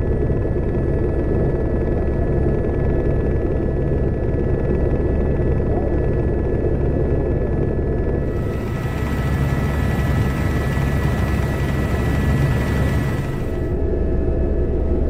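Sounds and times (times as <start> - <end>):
helicopter rotor and engine rumble: 0.0 - 15.0
faint high whine: 8.3 - 13.8.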